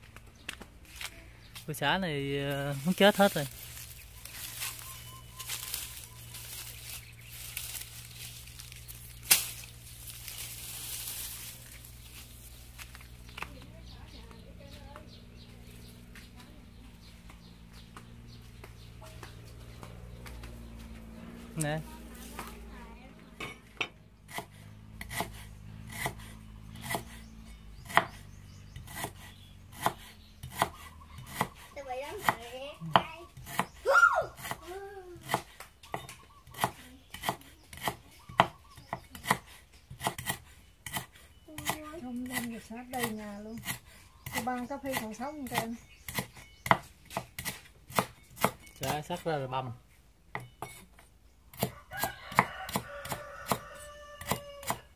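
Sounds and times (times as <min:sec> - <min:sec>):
dry stalks and leaves rustling: 0:00.0 - 0:15.0
stalk snapping: 0:05.4 - 0:12.2
cleaver chopping on wooden block: 0:23.7 - 0:33.8, 0:34.4 - 0:49.0, 0:51.5 - 0:54.9.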